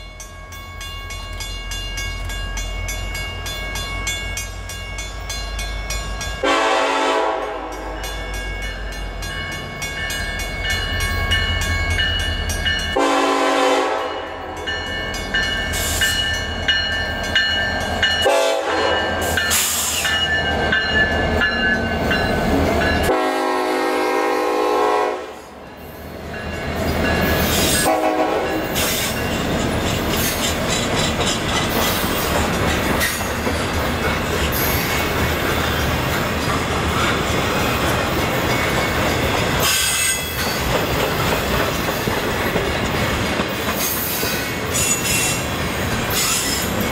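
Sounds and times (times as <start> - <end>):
low rumble of locomotive engines: 0.0 - 46.9
train wheels clacking on rails: 1.1 - 23.8, 26.4 - 46.9
locomotive horn blasts: 6.4 - 8.0, 12.9 - 14.6, 18.2 - 19.1, 23.0 - 25.5, 27.8 - 28.8.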